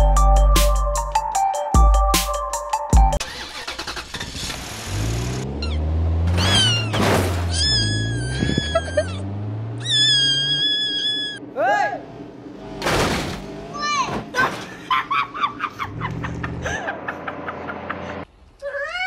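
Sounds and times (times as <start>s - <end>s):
car engine running: 3.2s - 18.2s
cat yowling loudly: 6.4s - 9.2s, 9.8s - 11.4s.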